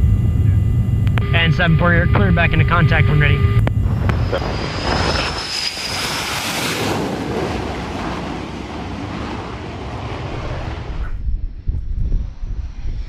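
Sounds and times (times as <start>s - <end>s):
high jet whine: 0.0s - 11.6s
jet engine roar: 0.0s - 13.0s
wind buffeting microphone: 3.6s - 13.0s.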